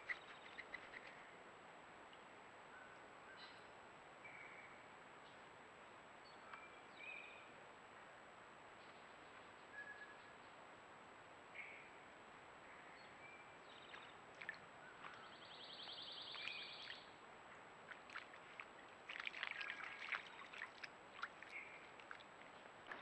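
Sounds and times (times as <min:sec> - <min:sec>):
faint high chirps: 0:15.0 - 0:17.1
deer stepping through mud and grass: 0:17.9 - 0:23.0.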